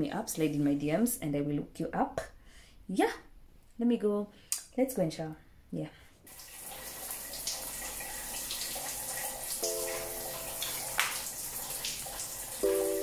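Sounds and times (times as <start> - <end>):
shower running: 6.3 - 13.0
short held musical notes: 9.6 - 10.9, 12.6 - 13.0.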